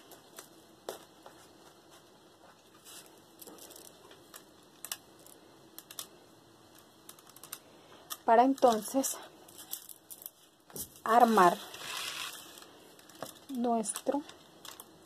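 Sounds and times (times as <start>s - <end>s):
beads clicking: 3.3s - 15.0s.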